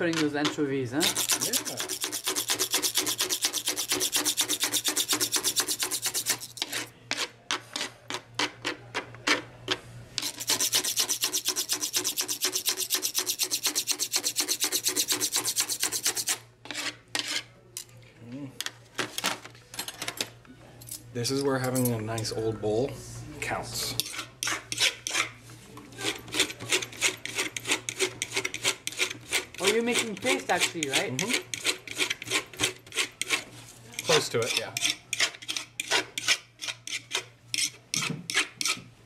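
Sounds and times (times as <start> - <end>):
utensils scraping wooden bowl: 0.0 - 9.4, 10.2 - 17.5, 24.0 - 25.4, 26.0 - 38.9.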